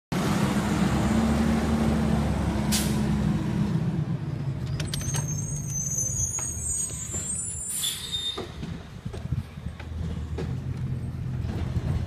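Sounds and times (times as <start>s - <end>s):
air brakes hissing: 2.7s - 3.1s, 5.2s - 8.6s.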